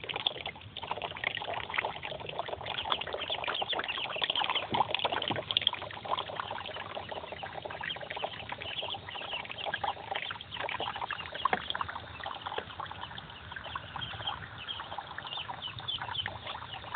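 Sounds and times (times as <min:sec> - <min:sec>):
ducklings peeping: 0:00.3 - 0:16.9.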